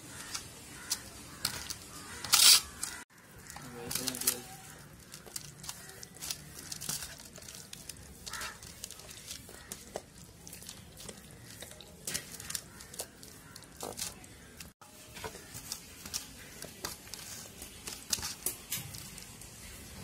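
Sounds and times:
hand squishing wet paste on fish: 0.1s - 14.7s.

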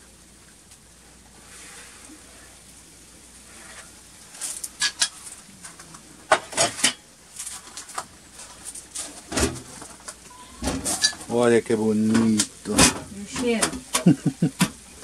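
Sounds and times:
metal tray clattering on stove top: 4.4s - 5.3s, 6.3s - 11.4s, 12.1s - 14.8s
metal tray clanking on wire rack: 12.1s - 14.1s.

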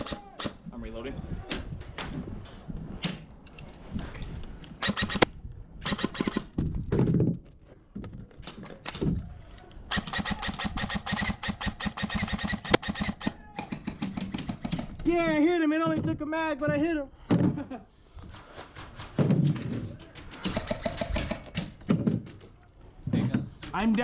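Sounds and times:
airsoft rifle firing bursts: 4.8s - 6.5s, 9.9s - 14.9s.

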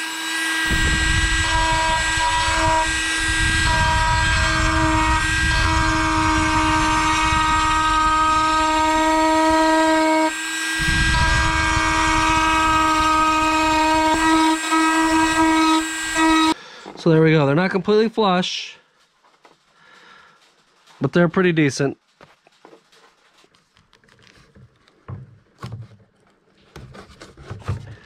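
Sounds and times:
bit grinding fiberglass: 0.0s - 16.6s
rotary tool whining: 0.0s - 16.6s.

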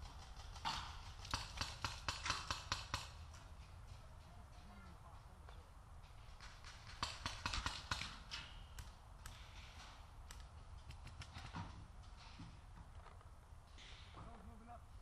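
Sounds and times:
paintball markers firing: 0.6s - 4.0s, 6.5s - 8.2s.

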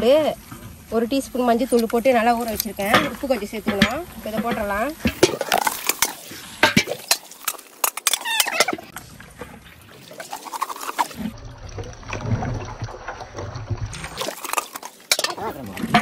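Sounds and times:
wet stirring and squelching: 0.0s - 16.0s
wooden paddle knocking on pot: 2.9s - 5.5s.

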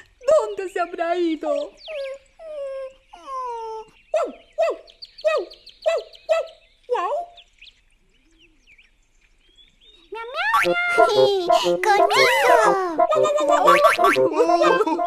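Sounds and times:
cartoon dog barking: 10.6s - 15.0s
cartoon dog whining: 10.6s - 15.0s.

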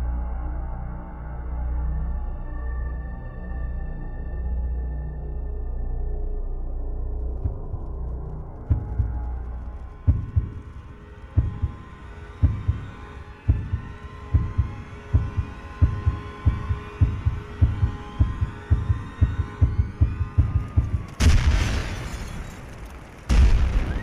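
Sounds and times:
rising drone: 6.2s - 21.9s
heartbeat-like thumping: 7.4s - 21.6s
loud hit: 21.2s - 22.5s.

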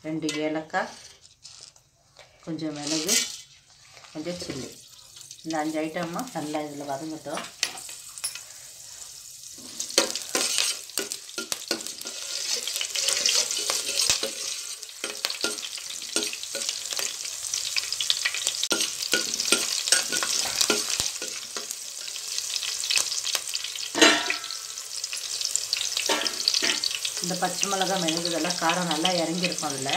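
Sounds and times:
spices sizzling in hot oil: 2.6s - 29.9s
spoon scraping and knocking pan: 2.7s - 4.7s, 9.6s - 22.2s, 23.9s - 24.7s, 26.0s - 29.7s.

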